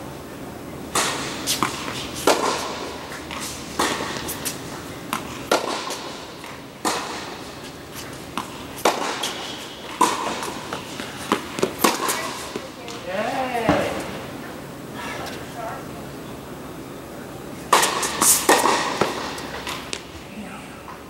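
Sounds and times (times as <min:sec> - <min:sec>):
tennis ball pops in echoing hall: 0:00.9 - 0:02.9, 0:05.1 - 0:07.3, 0:08.4 - 0:12.6, 0:17.7 - 0:20.1.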